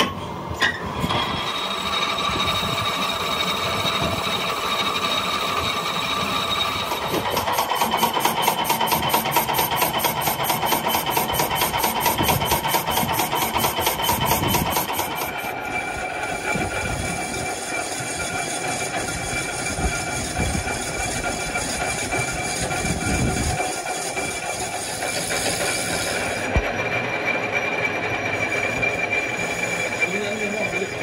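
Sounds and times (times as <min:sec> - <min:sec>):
lathe whirring: 0:00.2 - 0:31.0.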